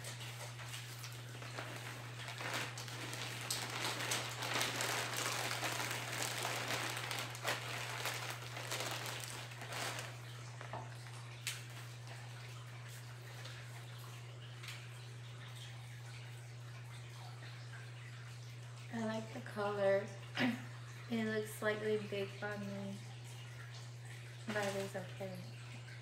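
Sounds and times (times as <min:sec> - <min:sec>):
packaging rustling and crinkling: 0:01.0 - 0:11.2, 0:24.5 - 0:25.0.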